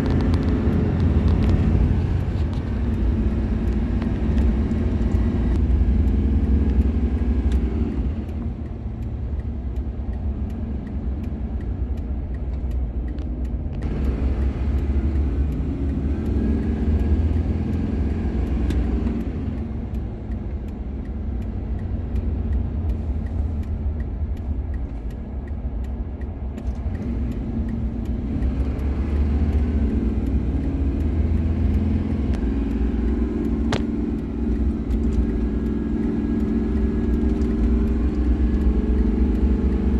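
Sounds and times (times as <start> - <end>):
truck engine and road rumble: 0.0 - 39.9.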